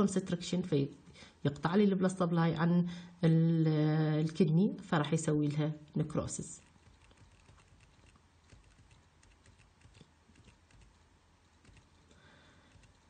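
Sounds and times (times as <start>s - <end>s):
laptop clicking and tapping: 6.8s - 11.0s, 11.6s - 12.0s, 12.7s - 13.0s.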